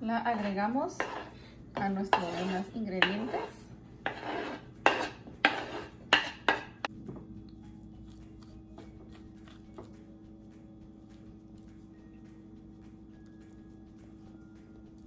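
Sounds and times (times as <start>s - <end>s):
potatoes scraped off cutting board: 0.3s - 6.0s.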